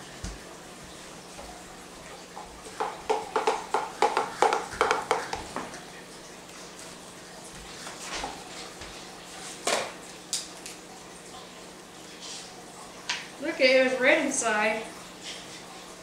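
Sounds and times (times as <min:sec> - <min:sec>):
knife chopping on cutting board: 0:02.8 - 0:05.5.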